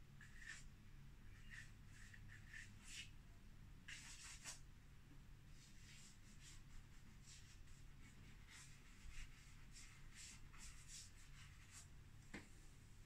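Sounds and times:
chalk pastel scratching: 0.2 - 0.7, 1.3 - 3.1, 3.9 - 4.6, 5.6 - 11.9.

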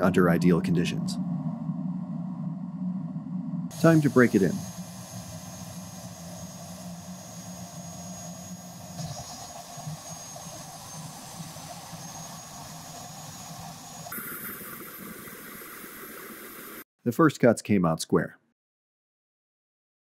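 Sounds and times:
table saw cutting wood: 3.7 - 16.8.

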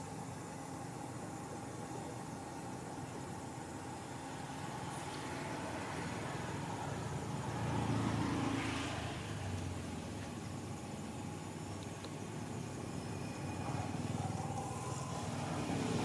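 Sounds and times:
outdoor background noise: 0.0 - 16.0
vehicle passing: 5.2 - 10.2.

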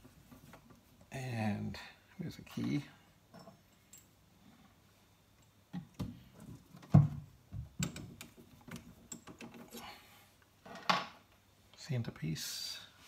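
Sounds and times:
metal clicks and knocks: 6.8 - 9.7.

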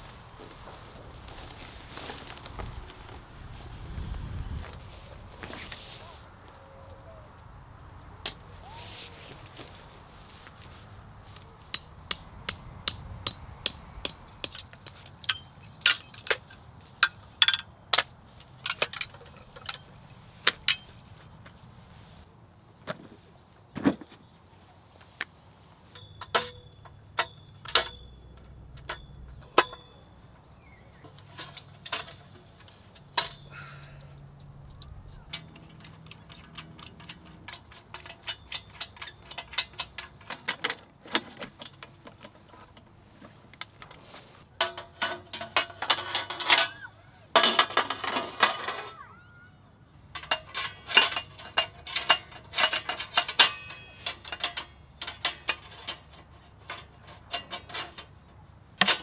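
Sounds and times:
metal poles clicking and clanking: 11.3 - 21.7, 25.8 - 49.0, 50.0 - 59.0.

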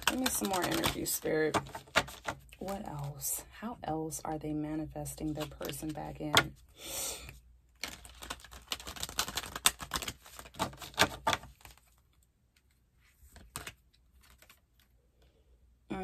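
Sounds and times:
cards being shuffled by hand: 0.0 - 3.3, 5.2 - 6.6, 7.2 - 14.9.

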